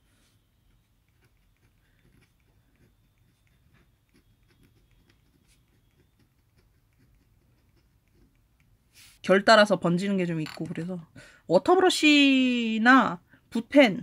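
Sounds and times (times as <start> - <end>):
pen nib scratching on paper: 0.7 - 9.2.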